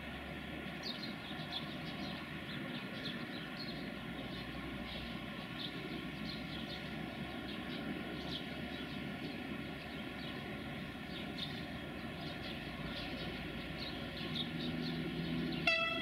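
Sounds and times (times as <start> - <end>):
freight train rumbling: 0.0 - 16.0
low steady hum: 0.0 - 16.0
high pitched tone: 15.7 - 16.0.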